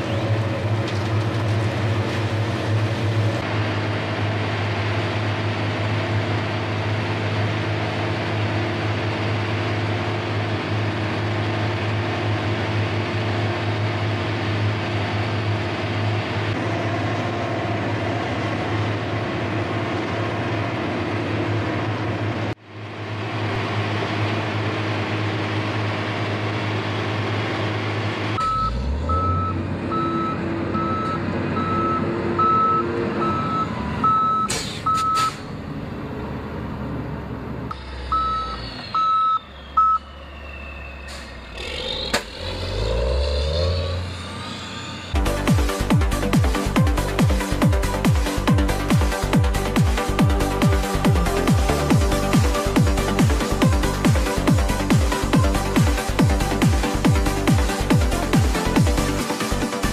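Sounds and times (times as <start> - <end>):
paving machine engines running: 0.0 - 59.9
reversing alarm beeping: 28.4 - 35.4, 37.7 - 41.4.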